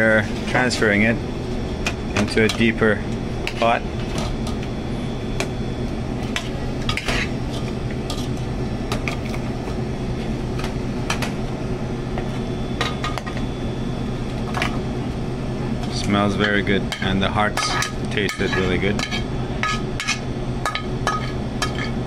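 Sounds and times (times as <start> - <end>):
steady low hum: 0.0 - 22.0
metal spoon scraping pans: 6.3 - 8.4, 16.4 - 22.0.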